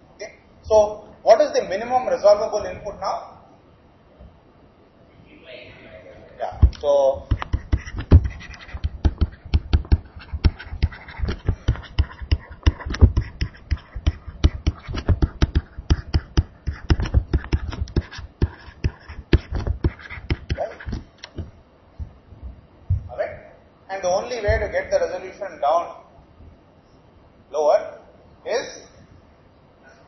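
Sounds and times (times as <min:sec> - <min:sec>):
stylus tapping on tablet screen: 0:06.6 - 0:21.5.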